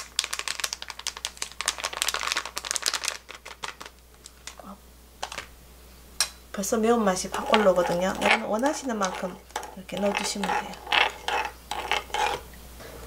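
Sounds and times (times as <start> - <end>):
plastic pouch crinkling: 0.0 - 5.5.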